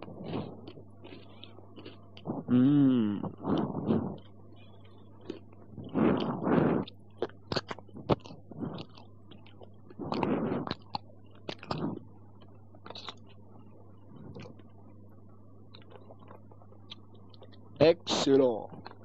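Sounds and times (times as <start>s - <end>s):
tape recording hum: 0.0s - 19.0s.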